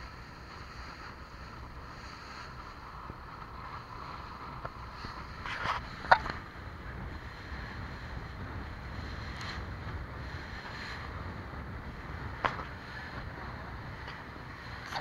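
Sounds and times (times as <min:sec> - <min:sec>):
motorboat engine rumble: 0:00.0 - 0:15.0
wind buffeting microphone: 0:00.0 - 0:15.0.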